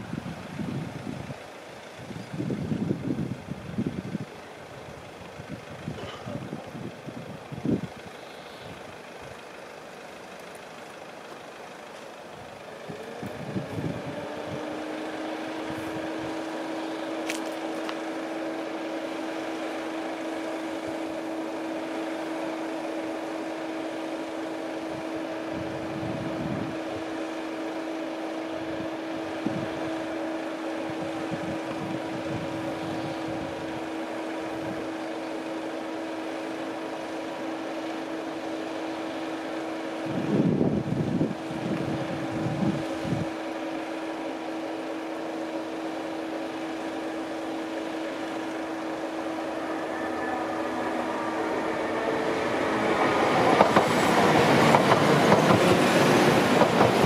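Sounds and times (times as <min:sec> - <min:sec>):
wind buffeting microphone: 0:12.9 - 0:14.9, 0:28.6 - 0:29.9, 0:40.1 - 0:43.3.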